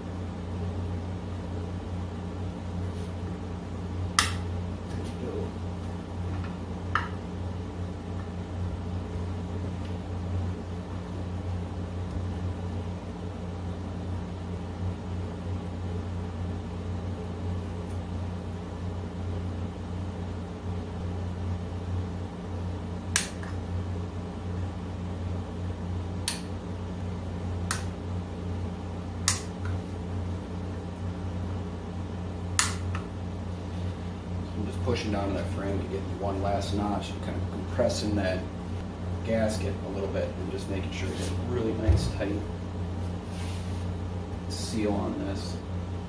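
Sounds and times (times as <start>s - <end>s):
low machine hum: 0.0s - 46.0s.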